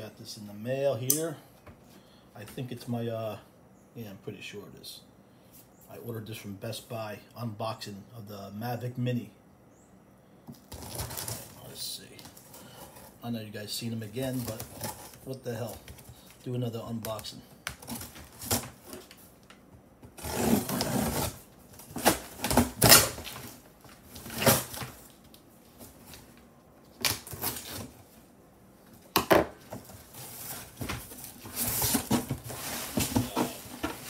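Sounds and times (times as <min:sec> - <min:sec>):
cardboard tearing and rustling: 0:10.6 - 0:13.1, 0:14.2 - 0:15.8, 0:17.8 - 0:19.2, 0:20.1 - 0:25.1, 0:27.0 - 0:28.0, 0:29.8 - 0:34.0.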